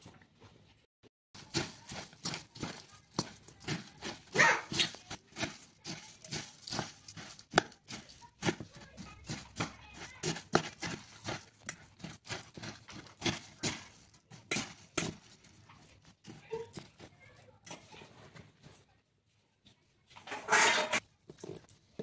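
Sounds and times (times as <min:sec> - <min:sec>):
puffed rice rustling: 0:01.4 - 0:18.7
metal spoon scraping steel bowl: 0:01.5 - 0:16.9, 0:20.3 - 0:21.0.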